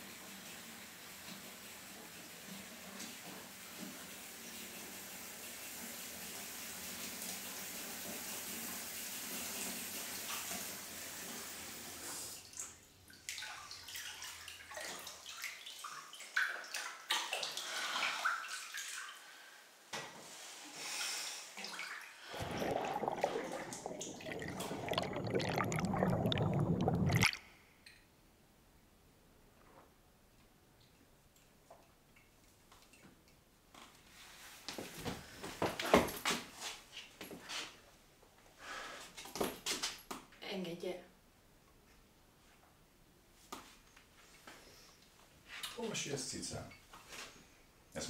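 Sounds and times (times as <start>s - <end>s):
splashing and sloshing in bath: 12.4s - 19.2s, 21.6s - 27.4s
water running into bathtub: 21.6s - 27.4s.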